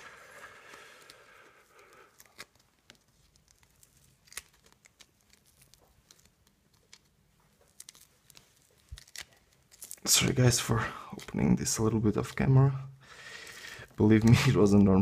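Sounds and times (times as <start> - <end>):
cord and tape crinkling: 0.0 - 12.6.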